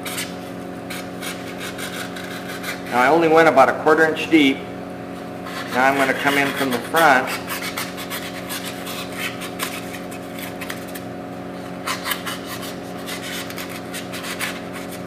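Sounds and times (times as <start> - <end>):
knife scraping into foam: 0.0 - 3.0, 5.4 - 11.0, 11.8 - 15.0.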